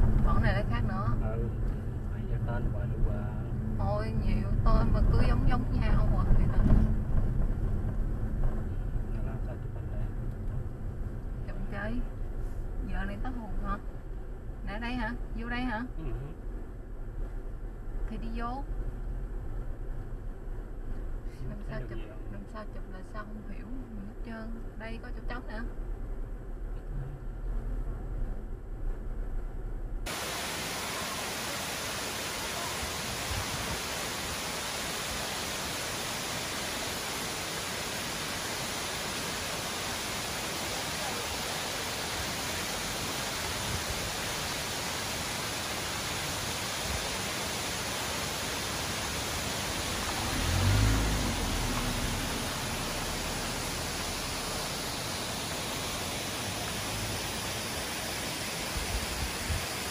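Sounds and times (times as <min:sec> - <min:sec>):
low rumble: 0:00.0 - 0:30.2, 0:49.8 - 0:57.4
waterfall rushing: 0:30.1 - 0:59.9.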